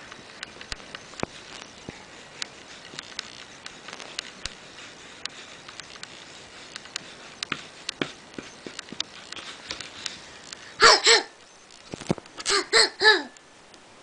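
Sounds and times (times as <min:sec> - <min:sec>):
crayon scribbling on paper: 0:01.2 - 0:10.4
sharp crayon taps: 0:06.7 - 0:10.0.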